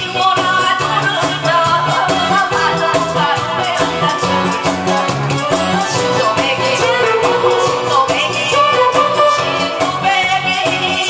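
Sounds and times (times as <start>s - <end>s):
woman singing into microphone: 0.0s - 4.8s, 5.4s - 11.0s
backing track with steady beat: 0.0s - 11.0s.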